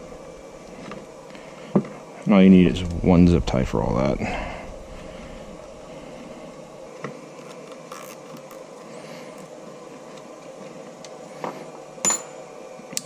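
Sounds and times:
wiring and zip tie rustling: 7.3s - 11.3s.

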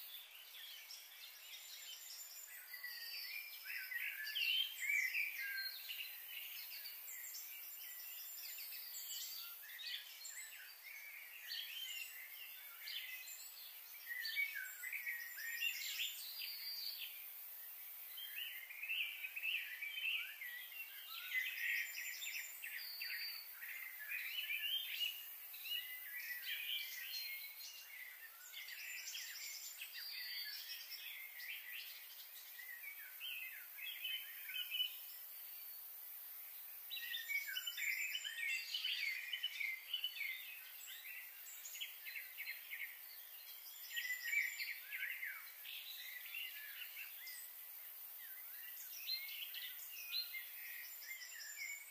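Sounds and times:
faint high hiss: 0.0s - 51.9s
small birds chirping: 0.0s - 51.9s.

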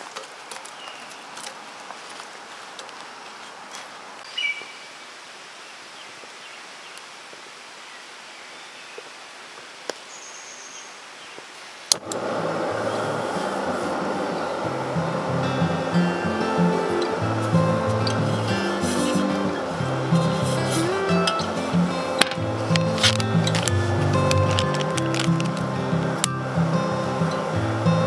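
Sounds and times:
stream water flowing: 11.6s - 28.0s
background music: 12.7s - 28.0s.

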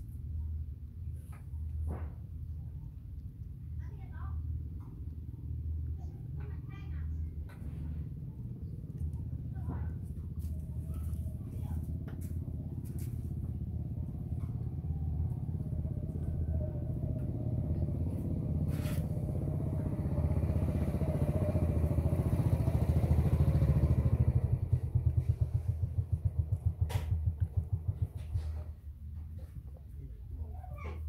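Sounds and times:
motorcycle engine running: 6.8s - 29.6s.

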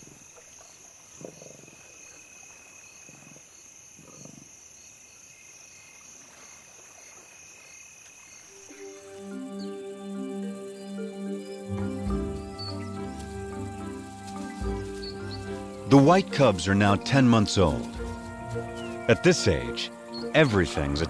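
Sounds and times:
crickets trilling: 0.0s - 21.0s
lions growling: 1.1s - 2.0s, 4.0s - 4.5s
music: 8.6s - 21.0s.

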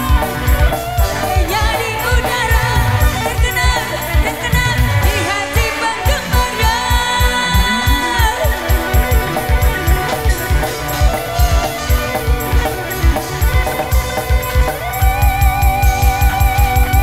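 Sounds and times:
dangdut band playing through loud pa: 0.0s - 17.0s
drums fast steady beat: 0.0s - 17.0s
electric guitar: 0.0s - 17.0s
keyboard: 0.0s - 17.0s
held wavering lead note: 6.9s - 17.0s.

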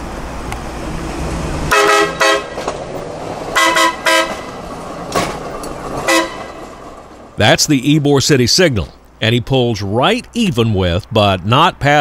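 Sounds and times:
low engine rumble: 0.0s - 11.1s
truck horn toots: 1.7s - 2.7s, 3.5s - 4.6s, 6.0s - 6.6s.

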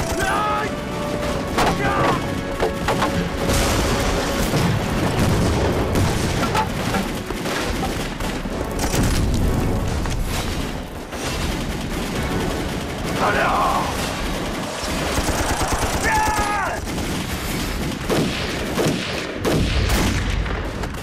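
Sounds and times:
scattered gunfire: 0.0s - 21.0s
large explosions with deep rumble: 3.4s - 16.0s.

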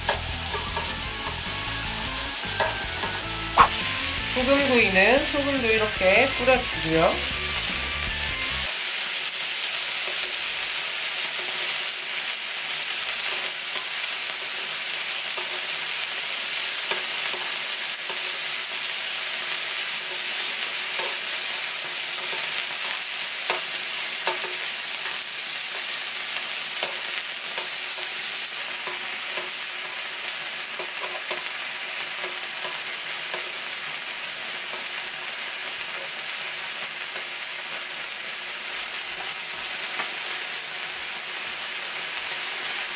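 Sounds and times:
meat sizzling in oil: 0.0s - 42.9s.

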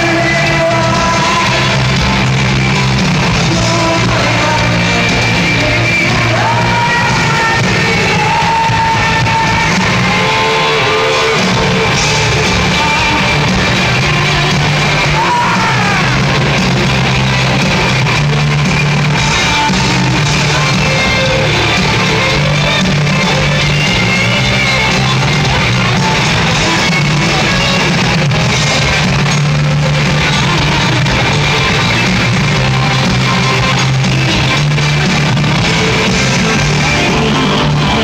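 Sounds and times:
bass guitar: 0.0s - 38.0s
drums: 0.0s - 38.0s
electric guitar: 0.0s - 38.0s
person singing: 0.0s - 38.0s.

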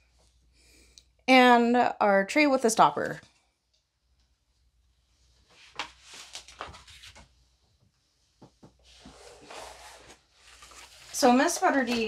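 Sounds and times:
cardboard box sliding rustle: 8.9s - 11.8s.

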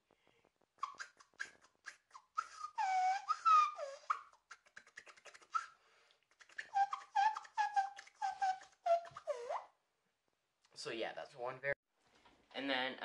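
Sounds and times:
soft mouth clicks: 0.2s - 2.8s, 3.9s - 9.3s
inward tooth whistle scratch: 0.8s - 9.8s.

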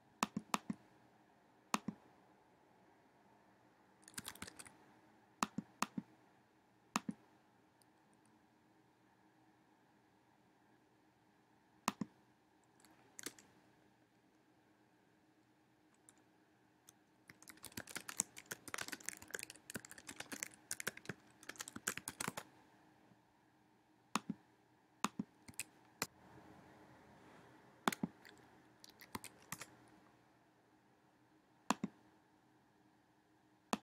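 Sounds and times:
computer keyboard typing: 4.0s - 4.7s, 12.8s - 13.5s, 17.3s - 22.5s, 25.0s - 26.1s, 27.9s - 29.7s.

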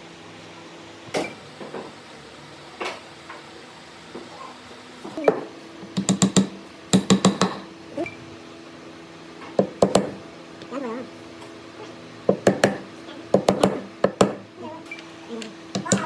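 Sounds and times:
hard knocks on wood: 5.3s - 7.6s, 9.6s - 10.2s, 12.3s - 14.4s.

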